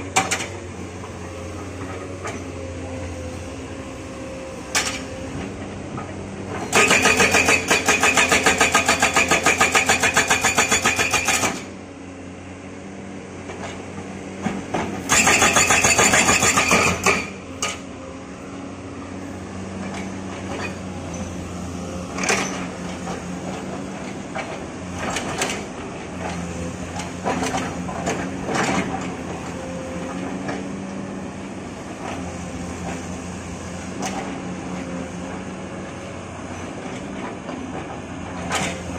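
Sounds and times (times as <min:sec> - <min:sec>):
diesel engine running: 0:00.0 - 0:38.9
hydraulic breaker hammering rock: 0:06.6 - 0:11.7, 0:14.5 - 0:17.8
knocks and clanks of steel and stone: 0:14.5 - 0:17.8.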